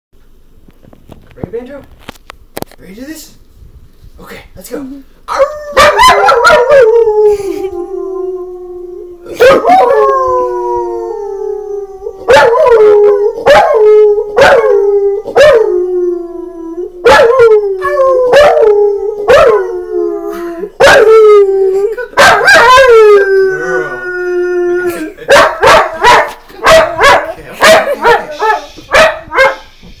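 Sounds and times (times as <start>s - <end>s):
man howling: 5.3s - 28.7s
dog howling: 5.3s - 29.6s.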